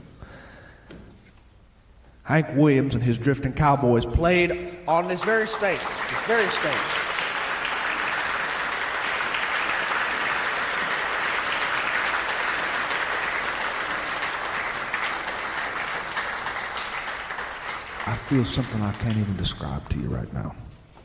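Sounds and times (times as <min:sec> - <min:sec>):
audience applauding: 0:04.9 - 0:20.2.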